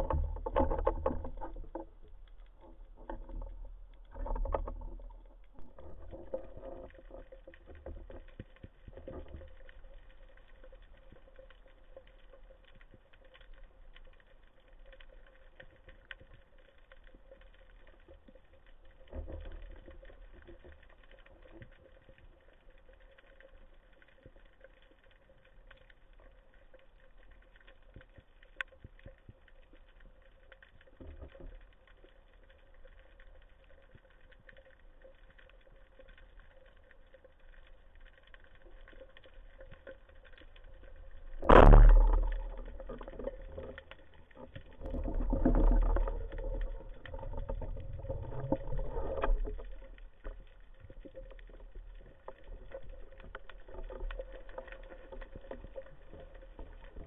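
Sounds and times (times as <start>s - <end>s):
fine crackle of clicks: 0.0s - 57.0s
muffled underwater thumps: 41.4s - 43.2s.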